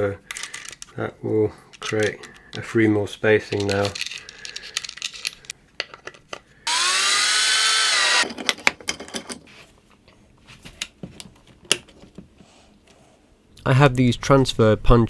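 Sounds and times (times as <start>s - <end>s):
screws and washers clinking: 3.4s - 9.4s
cordless drill whining: 6.7s - 8.3s.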